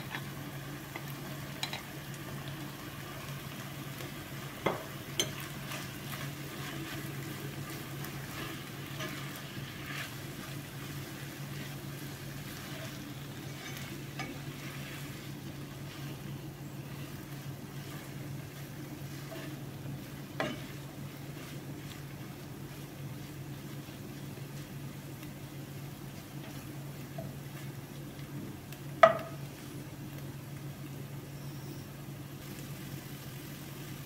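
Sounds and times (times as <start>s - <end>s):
spatula stirring in pan: 0.0s - 30.8s
food sizzling in a pan: 0.0s - 34.0s
spatula knocking on pan: 20.4s - 20.8s, 29.0s - 29.4s.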